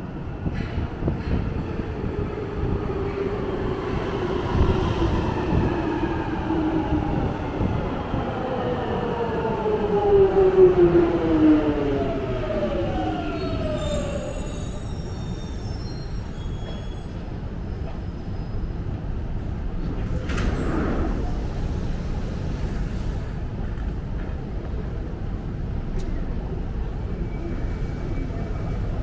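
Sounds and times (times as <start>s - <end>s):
brake squeals: 13.7s - 18.8s.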